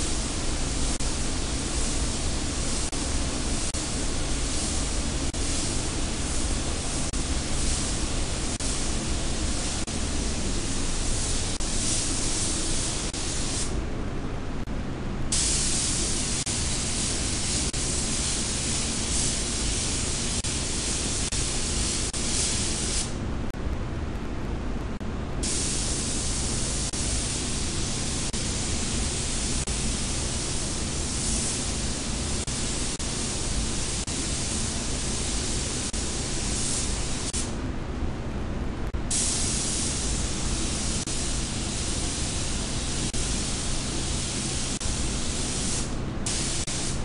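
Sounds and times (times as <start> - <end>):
paint spray gun hissing: 0.0 - 13.8, 15.3 - 23.2, 25.4 - 37.5, 39.1 - 47.0
low rumble of air flow: 0.0 - 47.0.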